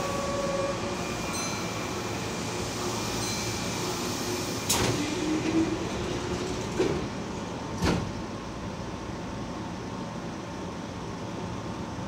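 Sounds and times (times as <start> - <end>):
train doors clunking: 4.6 - 8.4.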